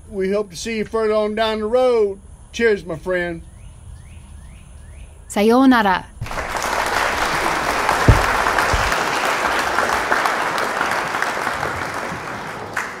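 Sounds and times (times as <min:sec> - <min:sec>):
group applause: 0:06.2 - 0:13.0
low thump: 0:07.3 - 0:09.0.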